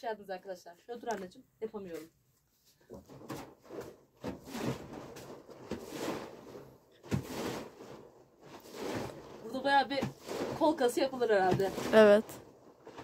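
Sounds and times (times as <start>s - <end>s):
liquid sloshing in wooden barrel: 2.9s - 13.0s.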